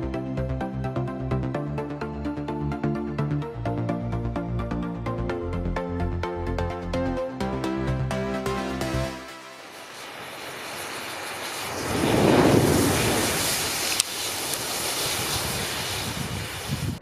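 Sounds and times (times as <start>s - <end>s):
matches igniting in a rush of flame: 9.4s - 17.0s
sharp crack: 9.6s - 16.2s.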